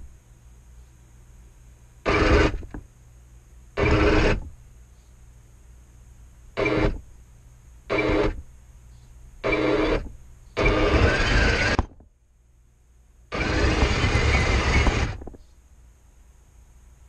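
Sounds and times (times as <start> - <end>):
model tank motors whirring: 3.8 - 4.4, 9.4 - 11.8, 13.3 - 15.3.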